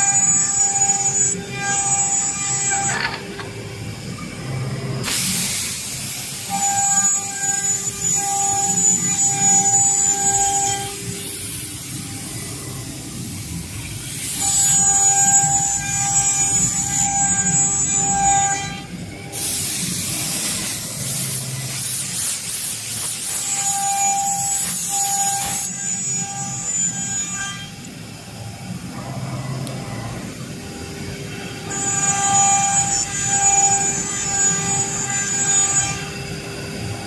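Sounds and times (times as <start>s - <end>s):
router spindles whining: 0.0s - 3.6s.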